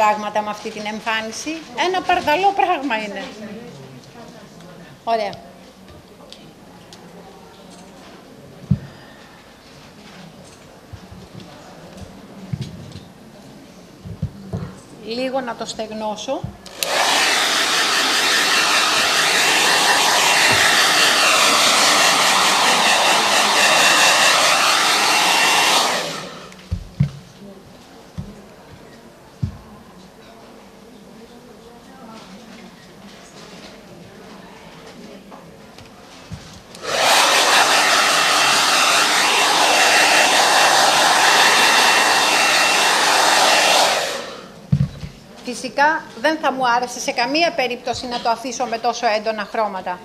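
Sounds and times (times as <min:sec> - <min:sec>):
hair dryer blowing: 0:16.7 - 0:26.6, 0:36.8 - 0:44.6.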